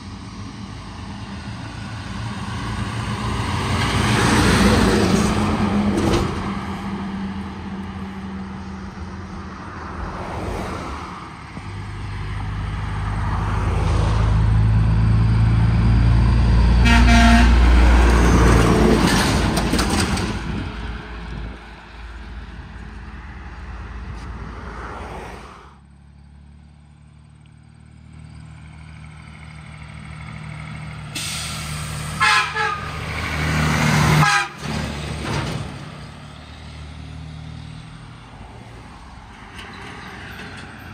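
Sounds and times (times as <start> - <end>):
trucks driving past: 0.0 - 40.9
truck horn toots: 16.8 - 17.8, 32.2 - 33.1, 34.1 - 34.7.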